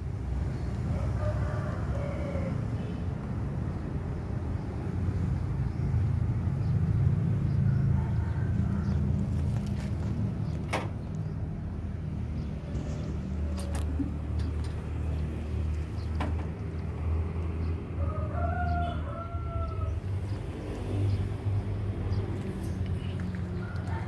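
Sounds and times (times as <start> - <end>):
rooster crowing: 0.9 - 2.8, 7.6 - 9.3, 18.0 - 20.0, 23.6 - 24.0.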